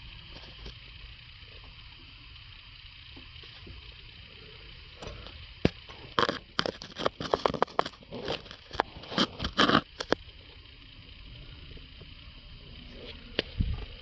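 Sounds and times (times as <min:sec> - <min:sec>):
crunching scraping clicks: 0:05.0 - 0:10.3.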